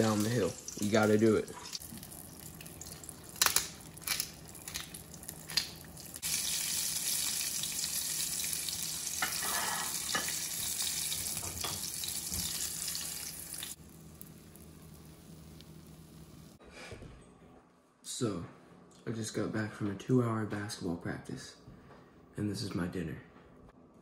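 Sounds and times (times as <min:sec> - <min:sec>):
fish fillet sizzling in oil: 0:00.0 - 0:16.6.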